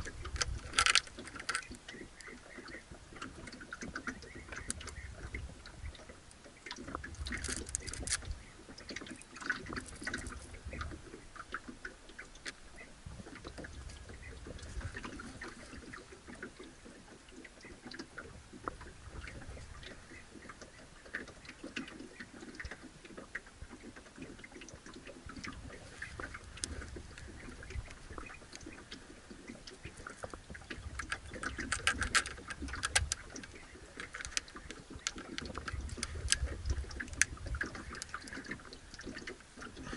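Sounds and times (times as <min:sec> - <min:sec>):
fishing reel clicking and rattling: 0:00.0 - 0:01.8, 0:07.2 - 0:08.3, 0:30.9 - 0:38.3
water lapping against boat hull: 0:00.0 - 0:39.9.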